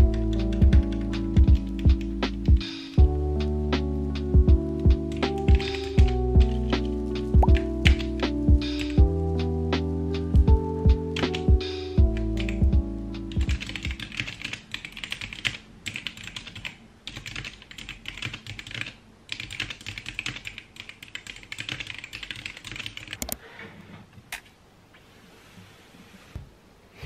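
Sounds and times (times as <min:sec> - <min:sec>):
fast typing on mechanical keyboard: 0:05.1 - 0:08.1, 0:12.1 - 0:12.6, 0:13.4 - 0:23.4.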